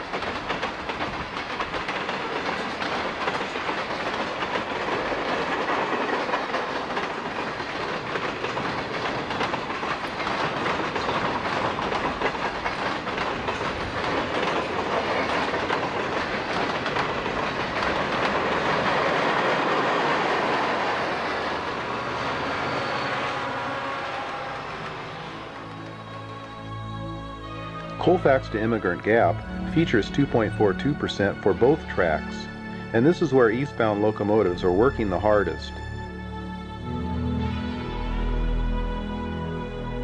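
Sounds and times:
freight car wheels clattering: 0.0s - 26.3s
diesel locomotives passing: 0.0s - 40.0s.

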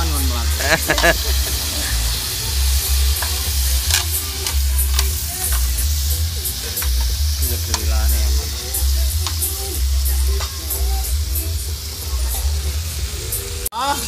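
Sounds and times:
meat sizzling on grill pan: 0.0s - 14.0s
metal tongs clicking and scraping: 3.2s - 5.7s.

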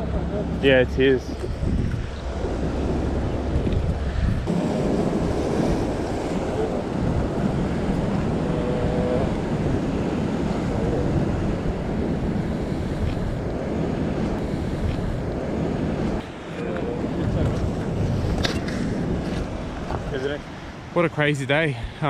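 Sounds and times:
wind blowing over microphone: 0.0s - 22.0s
waves breaking against rocks: 0.6s - 21.6s.

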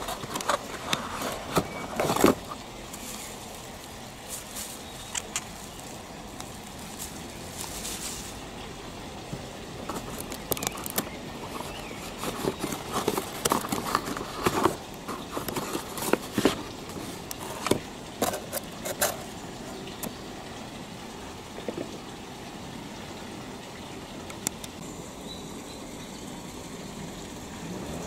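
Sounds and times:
cardboard box scraping and knocking: 0.0s - 3.3s, 11.4s - 19.2s
steady background noise: 0.0s - 28.0s
bubble wrap crinkling: 5.7s - 8.5s.

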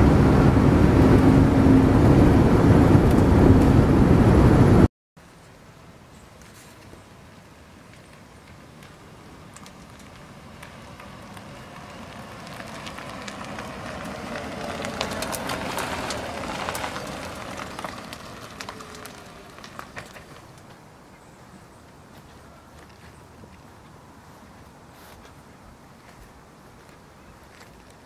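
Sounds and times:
tyres rolling on rough pavement: 0.0s - 4.8s, 7.0s - 28.0s
grit crackling: 7.9s - 20.8s.

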